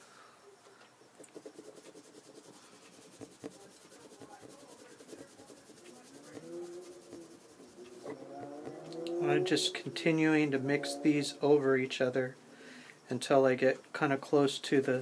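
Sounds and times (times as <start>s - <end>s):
crayon scribbling on paper: 1.2s - 8.8s.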